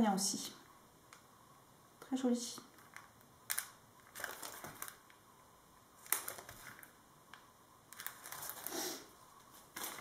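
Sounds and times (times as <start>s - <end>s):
plastic sachet crinkling: 2.7s - 5.2s, 6.0s - 8.8s, 9.6s - 10.0s.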